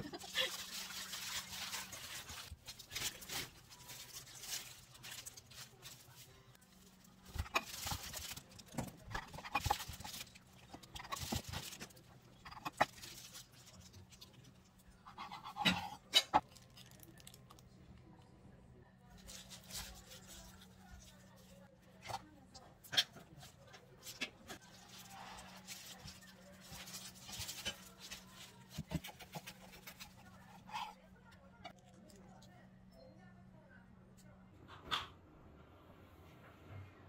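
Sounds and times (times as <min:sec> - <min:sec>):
spoon scraping on bread: 0:07.3 - 0:16.9.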